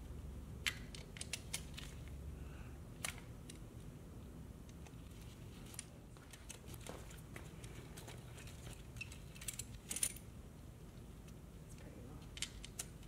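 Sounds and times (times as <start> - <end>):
metal tool clicks on bolts: 0.6 - 1.9, 12.3 - 13.0.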